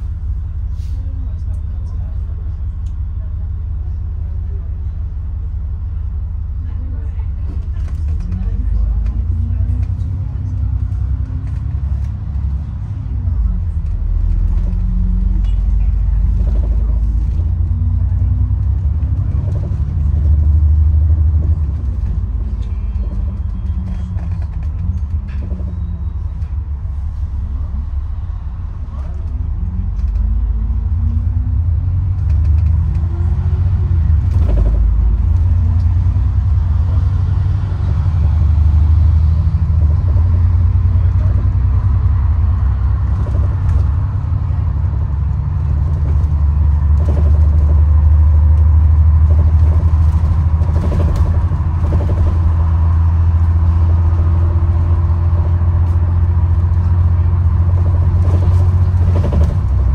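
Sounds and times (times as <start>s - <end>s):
bus engine and road rumble: 0.0s - 59.9s
knocks and rattles: 57.7s - 59.9s.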